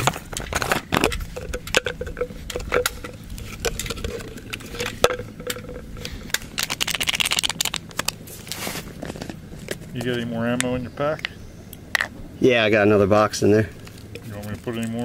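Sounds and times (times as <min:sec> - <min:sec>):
foil packet crinkling: 0:05.6 - 0:10.0.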